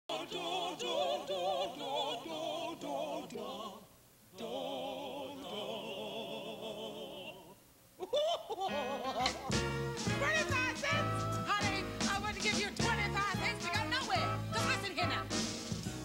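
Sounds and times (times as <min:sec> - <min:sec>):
voices singing in harmony: 0:00.1 - 0:07.6.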